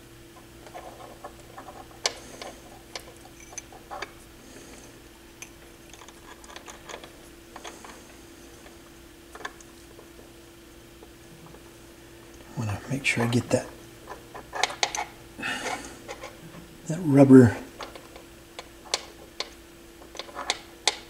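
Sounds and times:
small metal parts clicking: 0.6 - 4.1, 5.4 - 8.0, 17.8 - 21.0.

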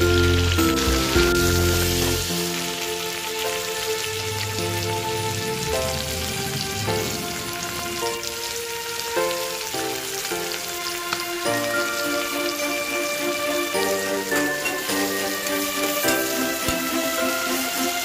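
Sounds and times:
fish frying in oil: 0.0 - 18.0
slow background music: 0.0 - 18.0.

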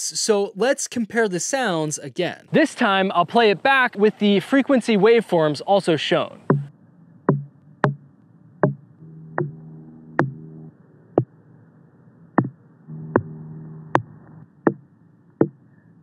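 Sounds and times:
airplane drone: 6.4 - 16.0.

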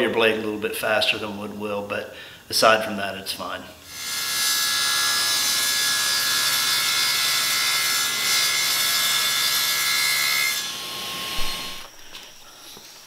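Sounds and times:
table saw cutting metal: 3.9 - 11.9.

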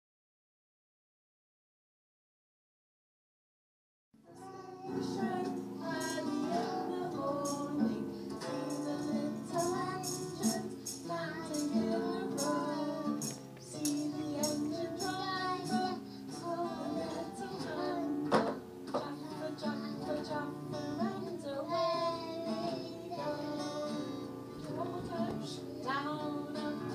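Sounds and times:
child singing: 4.2 - 26.9
woman singing: 4.2 - 26.9
acoustic guitar strumming: 4.3 - 26.9
sharp knock: 18.3 - 18.6.

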